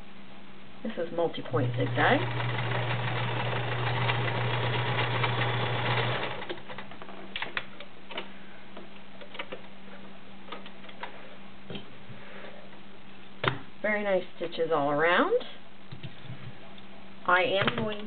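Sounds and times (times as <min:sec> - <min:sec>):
sewing machine stitching: 0:01.6 - 0:06.7.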